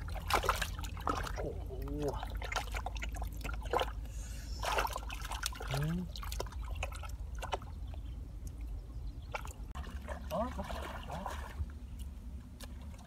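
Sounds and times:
hands squelching through mud: 0.0s - 7.8s
small splashes and drips: 0.0s - 13.0s.

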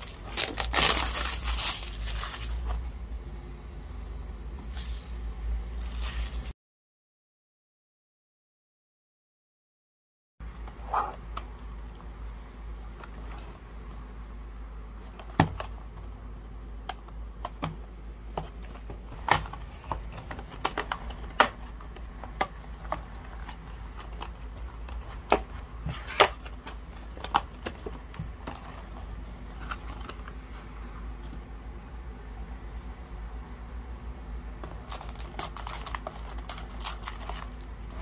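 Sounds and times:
low steady hum: 10.4s - 38.0s.

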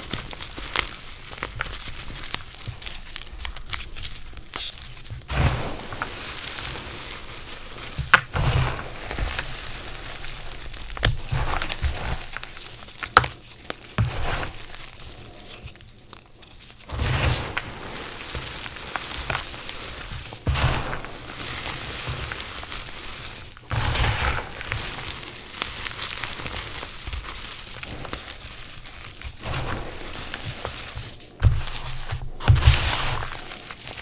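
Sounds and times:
chalk crunching and crackling: 0.0s - 34.0s
chalk snapping: 0.1s - 6.8s.

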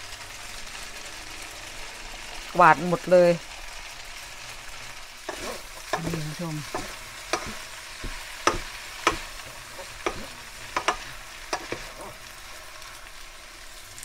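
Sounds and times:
spaghetti sizzling in frying pan: 0.0s - 14.0s
spatulas knocking against pan: 5.3s - 12.2s.

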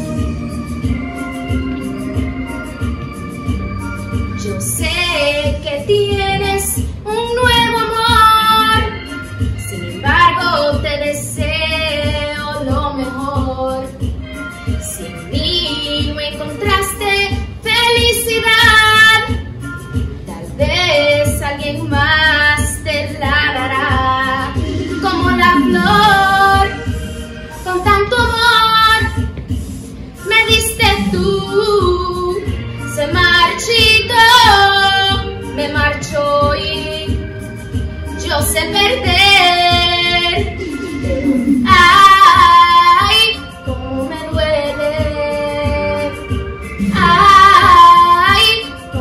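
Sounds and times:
backing track with steady beat: 0.0s - 49.0s
woman singing: 4.3s - 14.1s, 14.8s - 19.4s, 20.3s - 29.3s, 30.2s - 37.3s, 38.1s - 49.0s.

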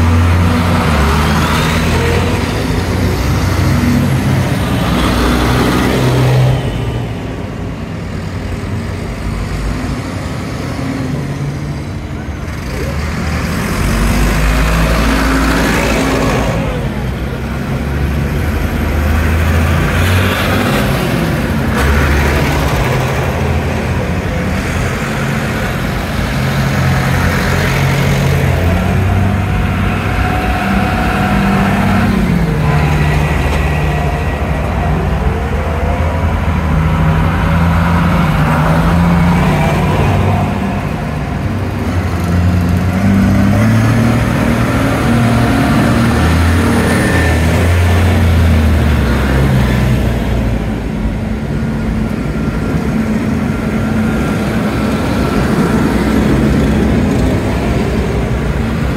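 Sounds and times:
tractor diesel engines passing: 0.0s - 58.9s.

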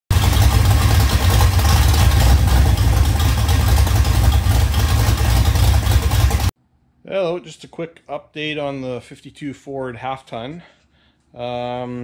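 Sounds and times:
engine idling: 0.1s - 6.5s.

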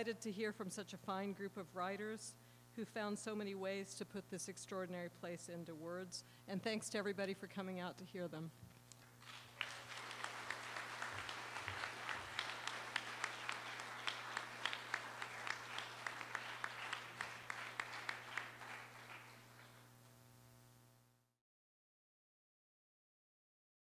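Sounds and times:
steady low hum: 0.0s - 21.3s
audience applauding: 9.1s - 19.9s.

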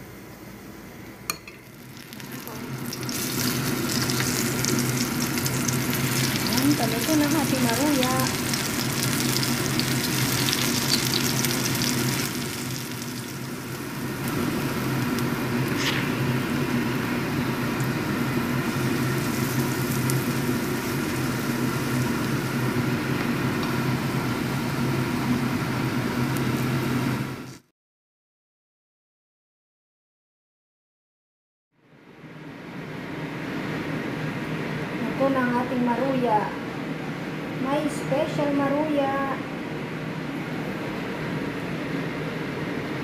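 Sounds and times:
steady low hum: 0.0s - 27.4s
oil sizzling in a frying pan: 1.3s - 27.7s.

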